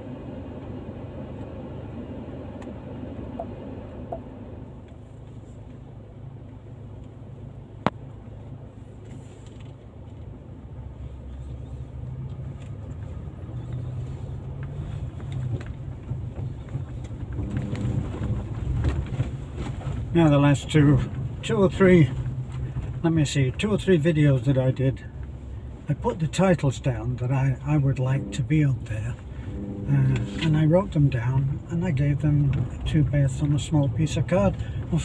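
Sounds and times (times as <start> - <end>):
car engine running: 0.0 - 35.0.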